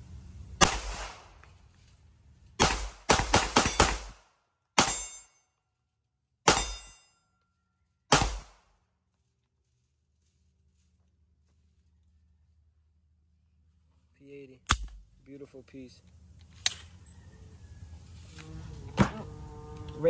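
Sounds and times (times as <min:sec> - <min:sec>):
pistol shots: 0:00.6 - 0:01.3, 0:02.6 - 0:05.2, 0:06.5 - 0:07.0, 0:08.1 - 0:08.6.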